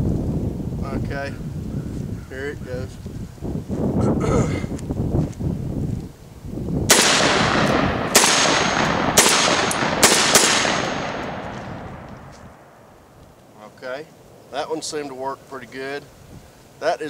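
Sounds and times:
shotgun shots with echo: 6.9s - 12.7s.

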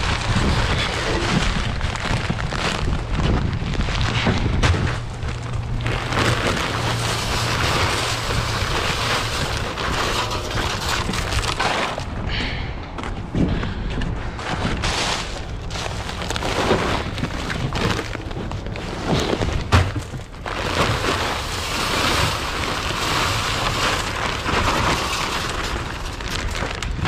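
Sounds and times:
rock salt pouring into plastic hopper: 20.6s - 26.8s.

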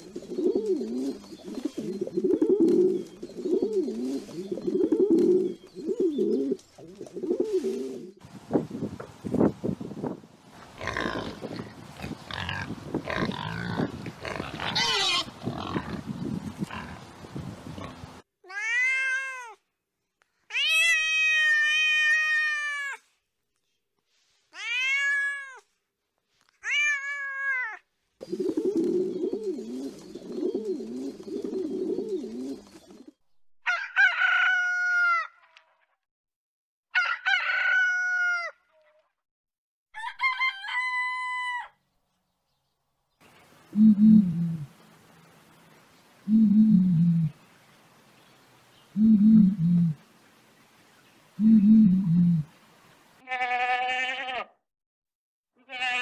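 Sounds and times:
pig grunting and squealing: 10.8s - 17.0s
cat meowing: 18.4s - 19.6s, 20.5s - 23.0s, 24.6s - 25.6s, 26.6s - 27.8s
drawn-out steady-pitched calls: 43.6s - 45.1s.

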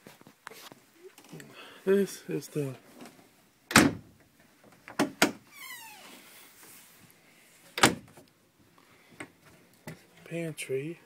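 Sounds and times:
cabinet door clicks: 3.7s - 4.0s, 7.8s - 8.1s.

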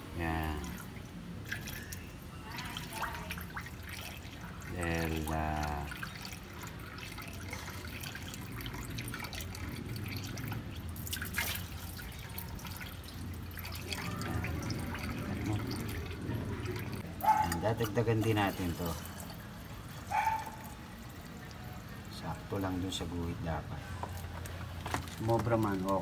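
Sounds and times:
water pouring into water: 0.2s - 17.2s.

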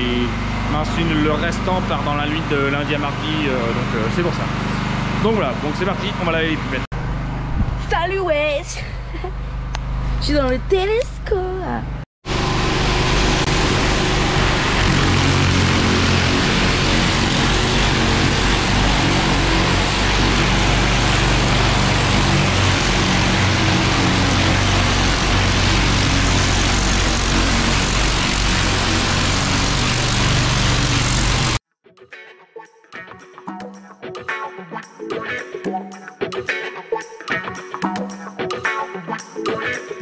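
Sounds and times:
low machine hum: 0.0s - 31.6s.

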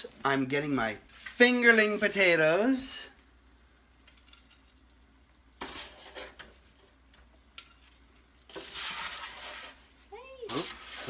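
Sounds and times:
metal tongs scraping on foil pan: 5.6s - 6.5s, 7.6s - 9.9s, 10.5s - 11.0s.

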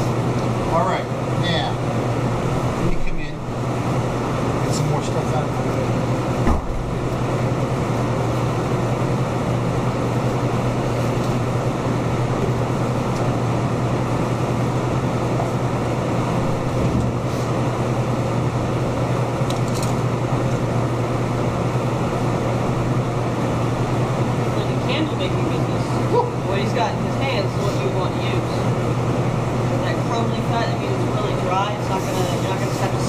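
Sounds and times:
air-handling machinery hum: 0.0s - 33.0s.

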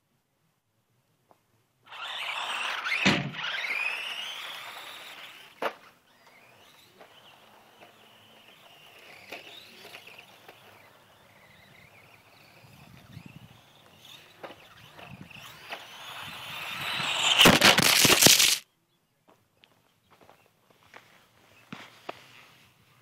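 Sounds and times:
toy truck motor whine: 1.9s - 18.6s.

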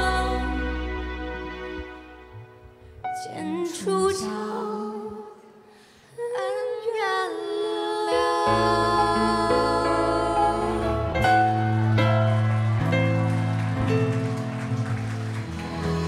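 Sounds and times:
women singing pop ballad duet: 0.0s - 1.1s, 3.2s - 11.3s
bass line: 0.0s - 2.8s, 8.3s - 16.0s.

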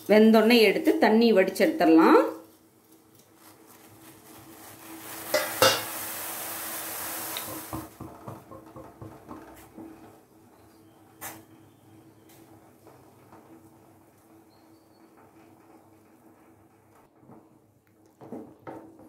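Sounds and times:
water boiling hard: 4.2s - 10.4s
spatula clinking on pan: 5.3s - 5.9s.

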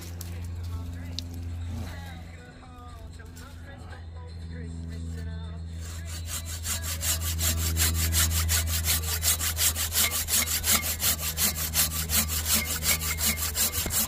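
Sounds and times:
hand saw cutting wood: 5.8s - 14.0s.

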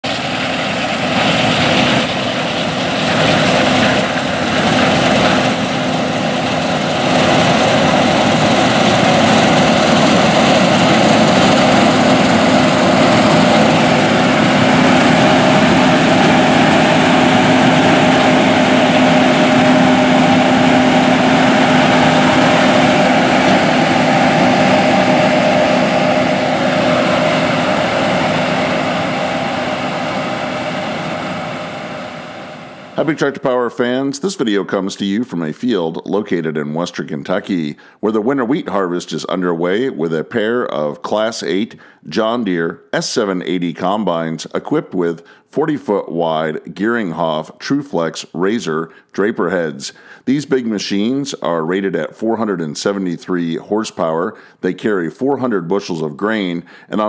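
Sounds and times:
combine harvester engine drone: 0.0s - 34.8s.

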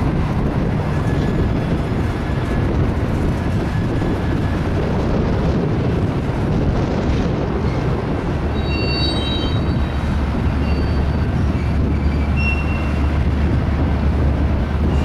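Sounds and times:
train wheels rumbling on rail: 0.0s - 15.0s
high-pitched wheel squeals: 8.5s - 13.1s.

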